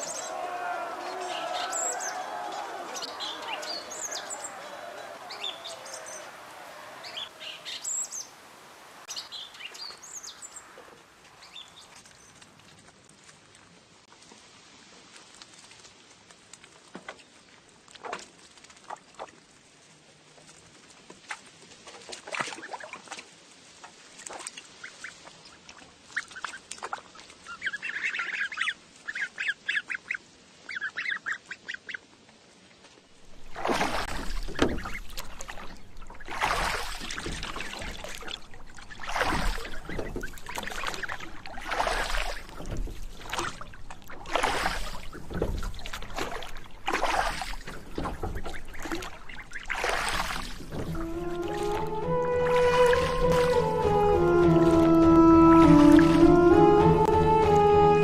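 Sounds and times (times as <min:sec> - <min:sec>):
ducks quacking: 0:00.0 - 0:07.8, 0:33.4 - 0:58.0
water splashing and sloshing: 0:00.0 - 0:58.0.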